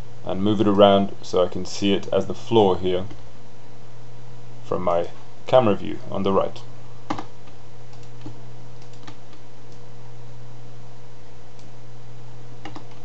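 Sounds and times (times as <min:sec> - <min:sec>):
low hum: 0:00.0 - 0:13.0
computer keys clicking: 0:07.1 - 0:09.8, 0:12.6 - 0:13.0.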